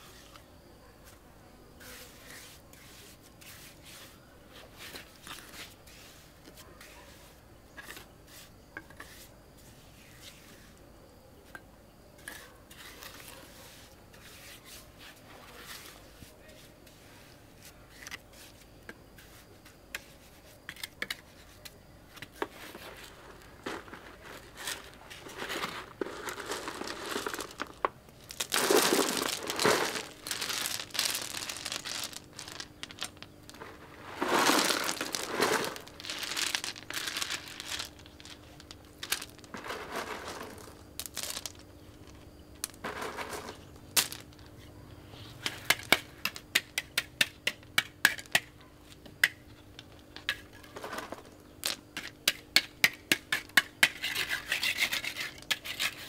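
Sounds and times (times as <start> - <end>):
crinkling handling noise: 20.6 - 46.5, 49.0 - 52.2.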